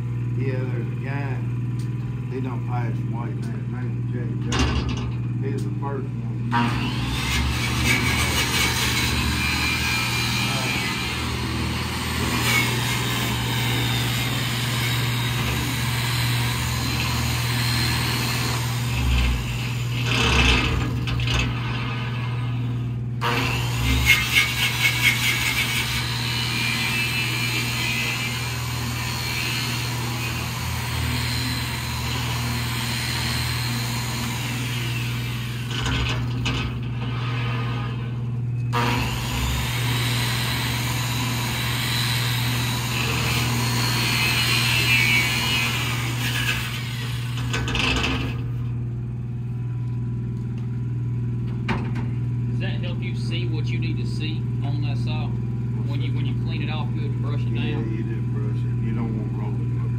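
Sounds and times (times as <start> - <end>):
steady low hum: 0.0 - 26.1, 46.5 - 59.9
angle grinder grinding steel: 2.4 - 48.8.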